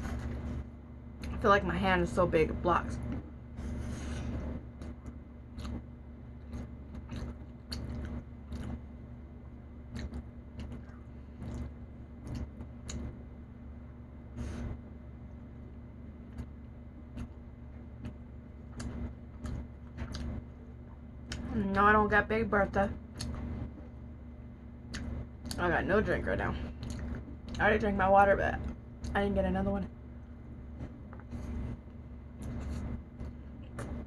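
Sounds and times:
steady low hum: 0:00.0 - 0:34.0
chewing and mouth sounds: 0:04.3 - 0:09.0, 0:09.8 - 0:13.2, 0:16.3 - 0:21.6, 0:23.1 - 0:23.6, 0:26.7 - 0:27.6.

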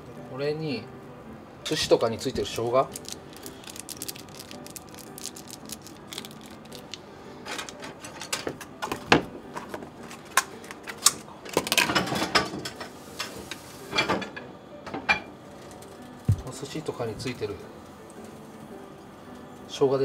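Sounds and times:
kitchen things clicking and crinkling: 0:02.5 - 0:12.9.

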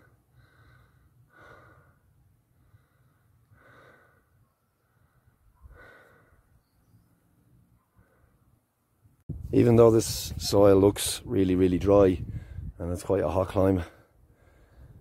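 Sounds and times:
faint breaths: 0:00.0 - 0:08.9, 0:12.2 - 0:12.8, 0:13.8 - 0:15.0.

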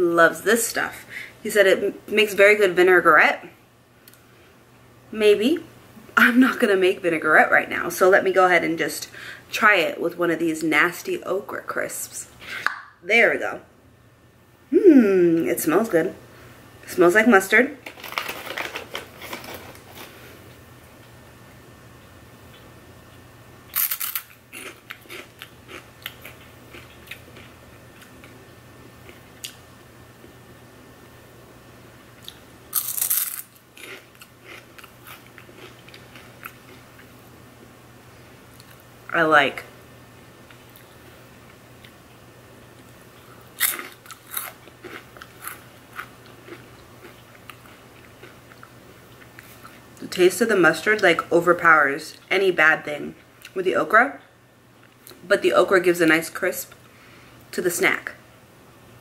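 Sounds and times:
crunchy snack chewing: 0:23.7 - 0:28.4, 0:32.2 - 0:37.1, 0:43.2 - 0:49.7.

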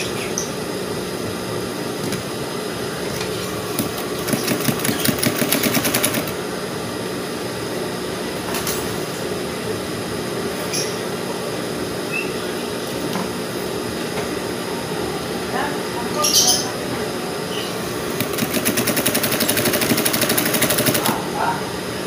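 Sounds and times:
steady hum: 0:00.0 - 0:22.0
sewing machine stitching: 0:03.8 - 0:06.3, 0:18.1 - 0:21.2.

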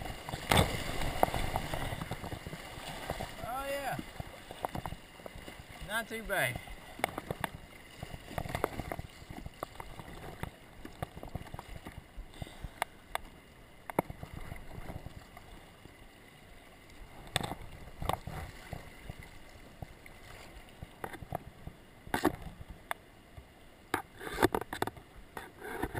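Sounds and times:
river water rushing: 0:00.0 - 0:13.8
paddle splashing: 0:00.0 - 0:25.9.

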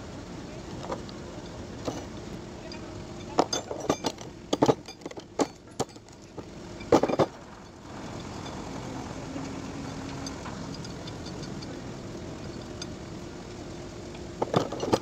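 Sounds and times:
steady hum: 0:00.0 - 0:15.0
metal bolts clinking: 0:02.7 - 0:08.7, 0:09.3 - 0:11.8.

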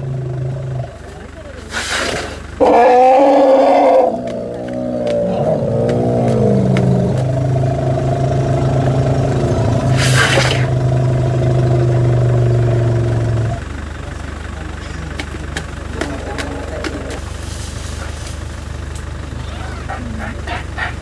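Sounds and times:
vehicle engine revving: 0:00.0 - 0:21.0
brief hissing rush: 0:09.9 - 0:10.7.

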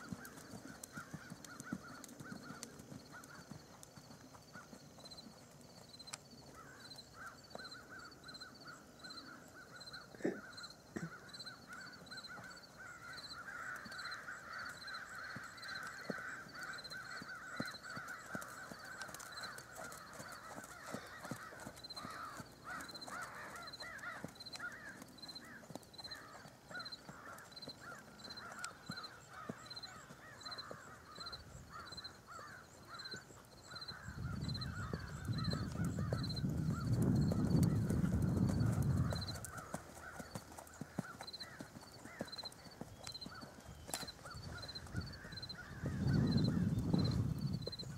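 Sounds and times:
crows cawing: 0:00.2 - 0:03.4, 0:06.6 - 0:08.0, 0:09.3 - 0:36.8, 0:39.0 - 0:42.6, 0:44.2 - 0:46.8.

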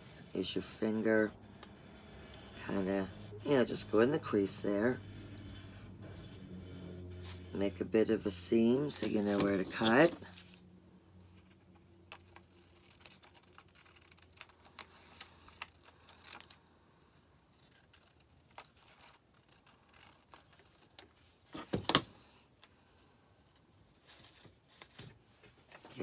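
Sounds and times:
scissors snipping paper: 0:12.3 - 0:16.6, 0:17.5 - 0:21.2.

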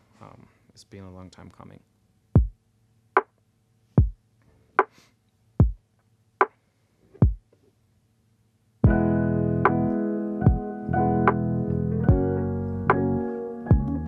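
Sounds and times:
sparse kick and snare beat: 0:02.4 - 0:02.6, 0:04.0 - 0:04.2, 0:05.6 - 0:05.9, 0:07.2 - 0:07.5, 0:13.7 - 0:13.9
held electric piano chord: 0:08.9 - 0:14.0.

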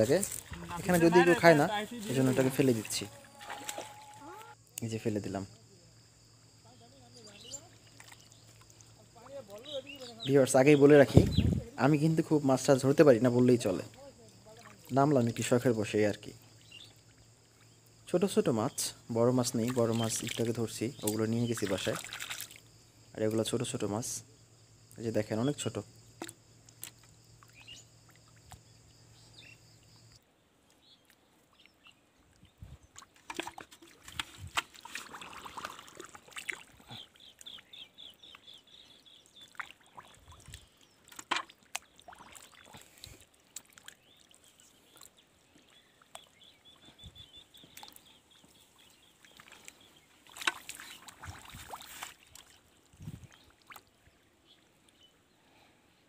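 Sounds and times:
hand splashing in muddy water: 0:00.1 - 0:04.5, 0:19.6 - 0:22.6, 0:33.2 - 0:37.0, 0:39.4 - 0:44.4, 0:49.3 - 0:53.9.

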